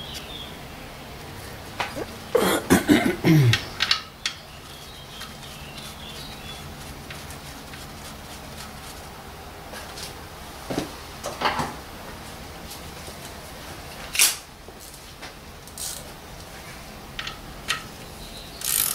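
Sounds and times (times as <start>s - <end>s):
metallic clicks and scrapes: 18.6s - 18.9s.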